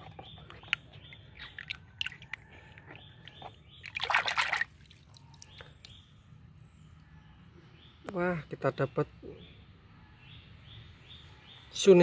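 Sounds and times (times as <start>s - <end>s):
hand splashing in soapy water: 3.9s - 4.7s.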